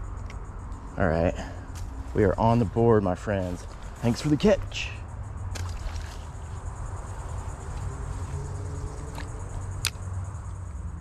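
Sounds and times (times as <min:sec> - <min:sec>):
insect trilling high pitch: 0:00.0 - 0:11.0
sharp click: 0:09.2 - 0:10.0.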